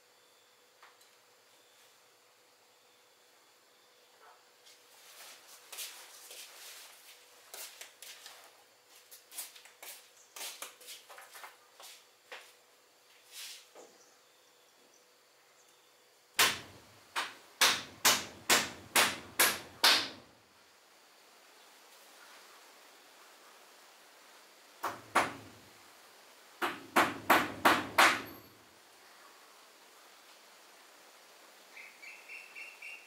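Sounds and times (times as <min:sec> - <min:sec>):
rustling: 0:04.7 - 0:11.6.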